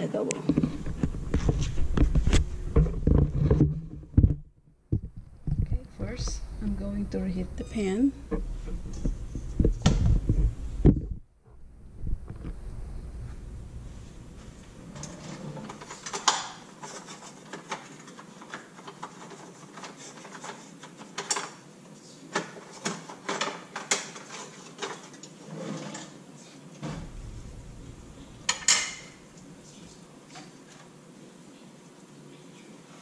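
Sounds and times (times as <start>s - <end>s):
utensils and dishware clattering: 15.0s - 21.6s, 22.4s - 26.2s, 28.4s - 29.3s.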